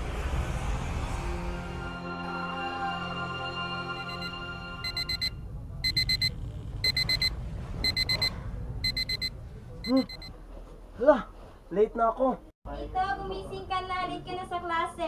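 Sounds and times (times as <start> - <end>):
digital alarm beeping: 4.0 - 10.3.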